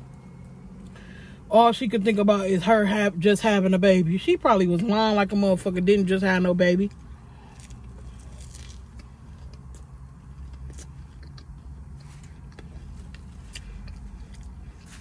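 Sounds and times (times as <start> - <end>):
low steady rumble: 0.0 - 15.0
person chewing: 6.9 - 15.0.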